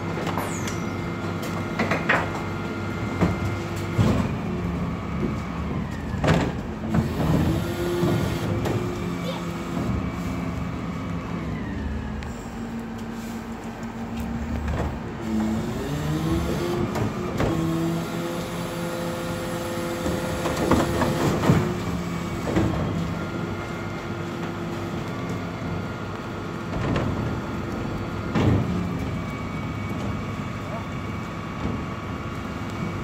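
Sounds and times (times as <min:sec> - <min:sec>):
hydraulic bin lift: 0:00.0 - 0:13.6.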